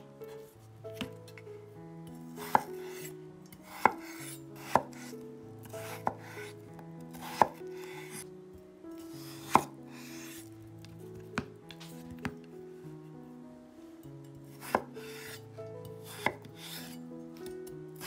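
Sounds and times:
knife chopping on cutting board: 0:02.4 - 0:05.1, 0:05.8 - 0:06.5, 0:07.1 - 0:08.2, 0:09.2 - 0:10.4, 0:14.6 - 0:15.4, 0:16.0 - 0:17.0.

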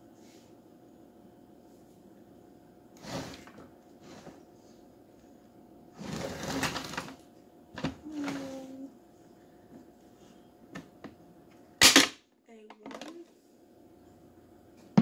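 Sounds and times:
plastic scraping and rattling: 0:06.0 - 0:07.2.

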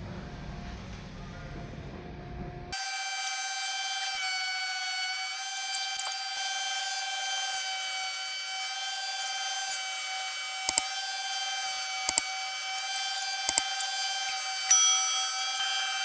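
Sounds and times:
planer whining: 0:02.8 - 0:16.0
sharp clicks: 0:10.6 - 0:11.0, 0:11.9 - 0:14.0.

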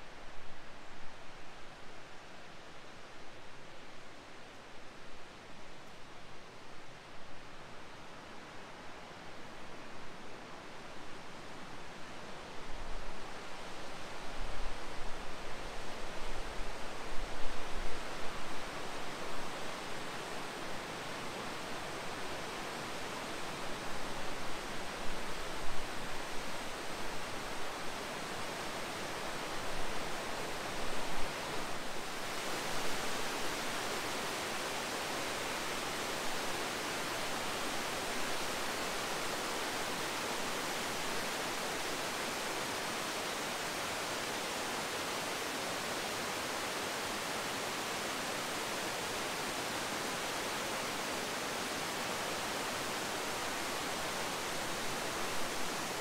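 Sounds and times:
whitewater rushing over rocks: 0:17.6 - 0:56.0.

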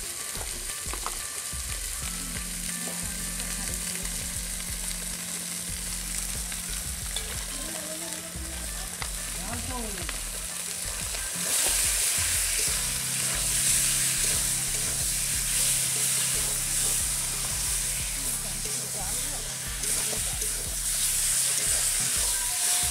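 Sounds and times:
food sizzling in hot oil: 0:00.0 - 0:22.9
metal spatula stirring: 0:10.6 - 0:22.9.

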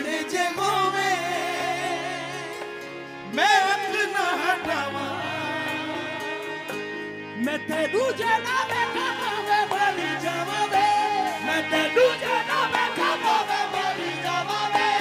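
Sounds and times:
man singing ornamented phrases: 0:07.4 - 0:15.0.

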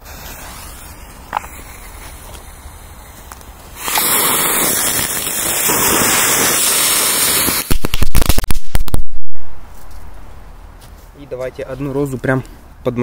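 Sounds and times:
firework hissing: 0:00.0 - 0:09.2
firecracker bangs: 0:03.8 - 0:09.6.

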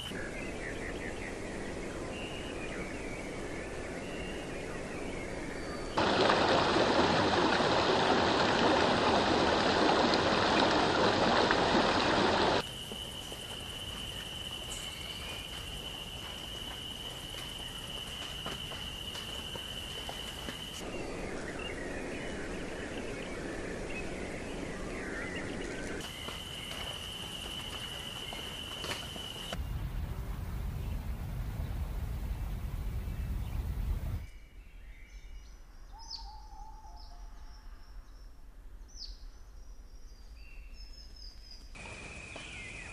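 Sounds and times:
low rumble: 0:29.6 - 0:34.2
faint bird chirps: 0:33.0 - 0:42.9.

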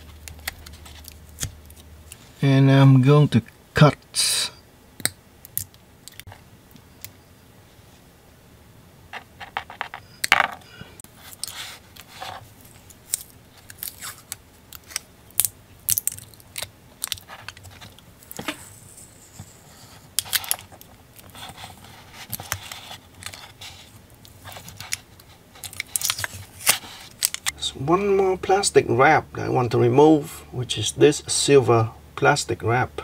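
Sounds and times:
tape peeling and crinkling: 0:00.0 - 0:02.3, 0:11.2 - 0:27.6.

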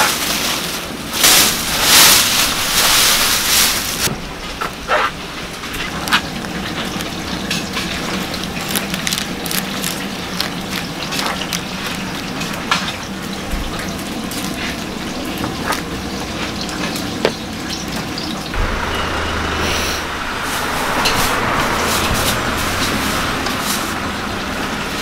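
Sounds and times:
broth bubbling at a boil: 0:05.3 - 0:18.6.

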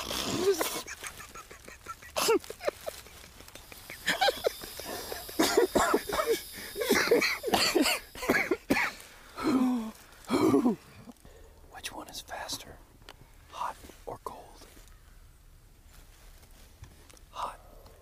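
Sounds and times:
person coughing and clearing throat: 0:02.1 - 0:02.8, 0:04.0 - 0:10.8.

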